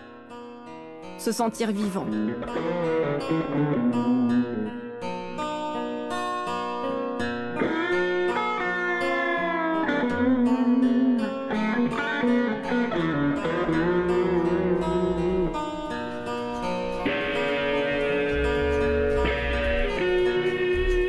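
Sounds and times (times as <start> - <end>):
sustained low chords: 18.3 - 21.0.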